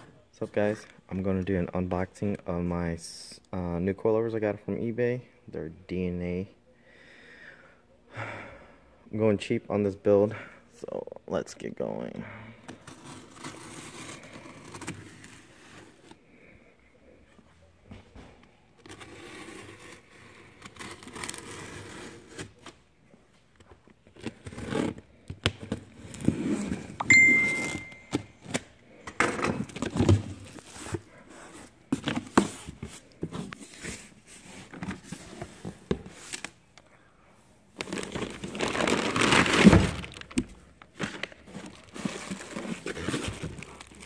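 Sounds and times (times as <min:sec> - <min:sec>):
brief high ring: 0:27.0 - 0:28.2.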